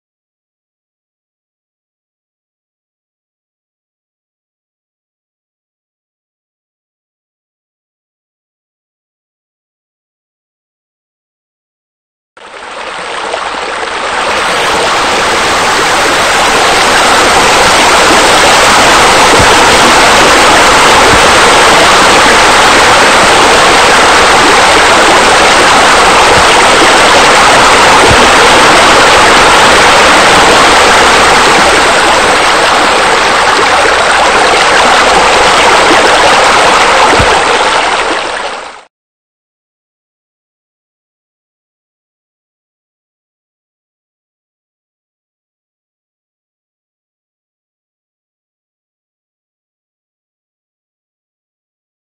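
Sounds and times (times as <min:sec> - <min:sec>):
splashing running water: 0:12.6 - 0:38.8.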